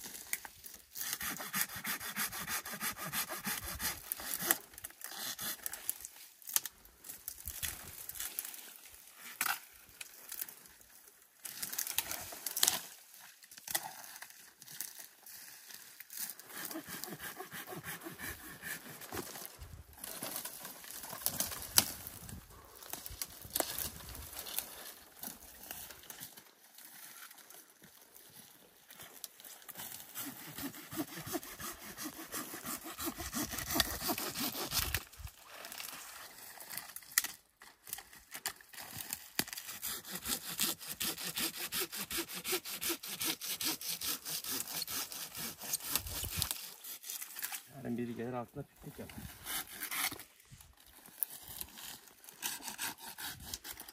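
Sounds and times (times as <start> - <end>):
hand saw cutting branch: 1.0 - 6.0, 16.3 - 22.1, 29.7 - 35.8, 39.2 - 47.6, 48.9 - 50.3, 51.6 - 53.9.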